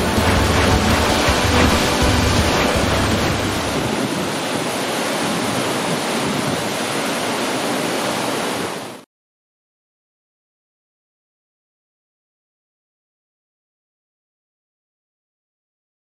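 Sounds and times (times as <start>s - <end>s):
waterfall rushing: 0.0s - 9.0s.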